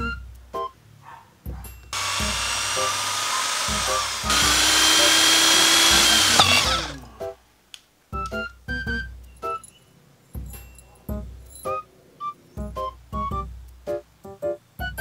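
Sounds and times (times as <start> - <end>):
electric drill whining: 2.0 - 7.0.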